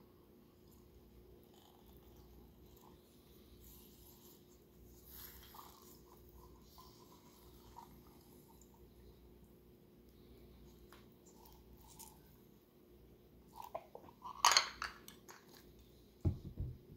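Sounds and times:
low room hum: 0:00.0 - 0:16.9.

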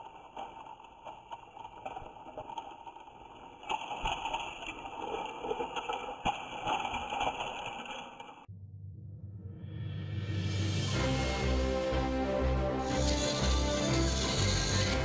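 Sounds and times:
toy train motors whirring: 0:12.9 - 0:15.0.

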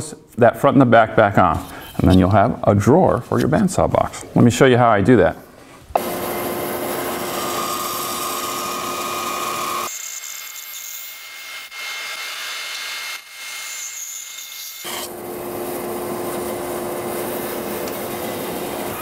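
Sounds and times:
band saw cutting wood: 0:06.0 - 0:19.0.

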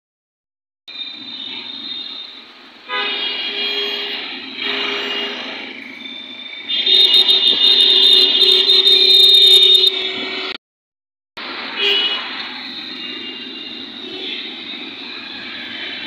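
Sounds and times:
street traffic: 0:00.9 - 0:10.6, 0:11.4 - 0:16.0
vehicle horns honking: 0:02.9 - 0:05.7, 0:06.6 - 0:10.6, 0:11.8 - 0:12.3, 0:13.0 - 0:14.6.

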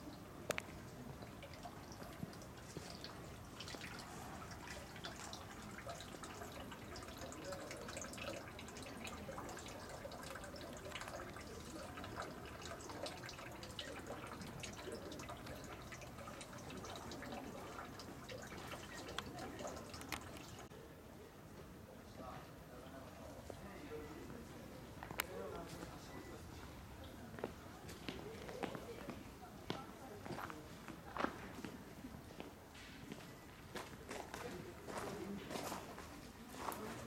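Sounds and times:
small water drips: 0:00.0 - 0:20.7
water trickling into stone basin: 0:00.0 - 0:20.8.

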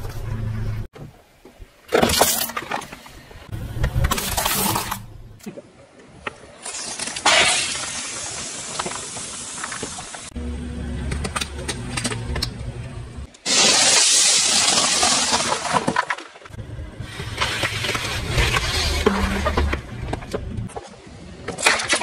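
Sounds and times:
car engine running low: 0:10.4 - 0:13.3.

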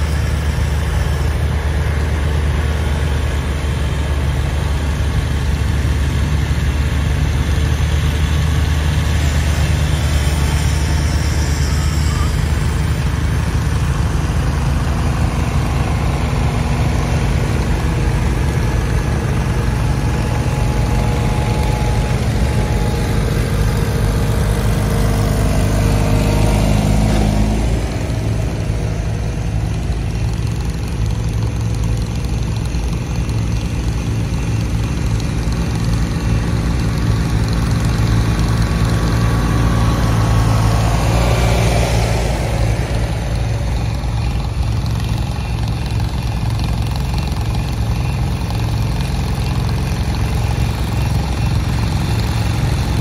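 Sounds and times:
garden tractor engine running: 0:00.0 - 0:53.0.

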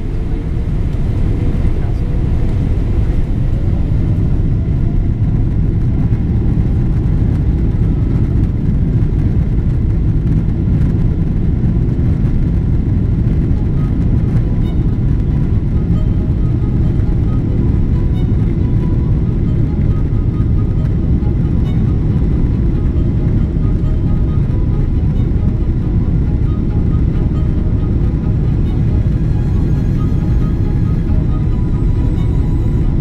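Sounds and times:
jet engine low rumble: 0:00.0 - 0:33.0
faint high whine: 0:12.2 - 0:33.0.

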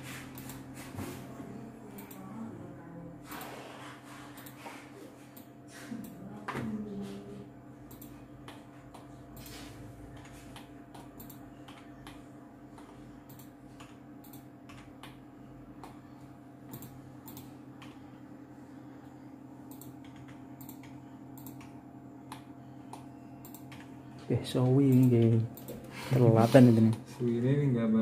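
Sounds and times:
keyboard and mouse clicking: 0:07.9 - 0:09.5, 0:10.1 - 0:12.2, 0:12.8 - 0:15.2, 0:16.7 - 0:18.0, 0:19.7 - 0:23.9, 0:24.6 - 0:25.8.

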